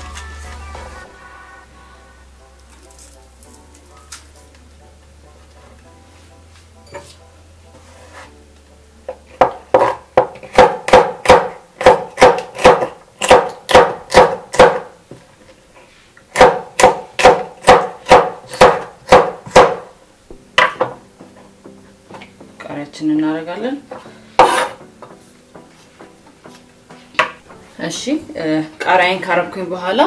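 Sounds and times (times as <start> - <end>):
knife chopping on wooden board: 9.2 - 14.9, 16.3 - 19.9, 24.4 - 24.8.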